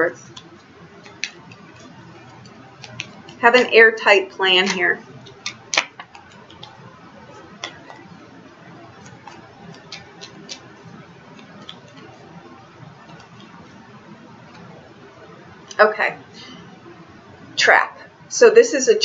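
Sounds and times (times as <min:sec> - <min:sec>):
low room noise: 0:00.0 - 0:19.0
cards being shuffled: 0:00.2 - 0:03.7, 0:04.6 - 0:13.8.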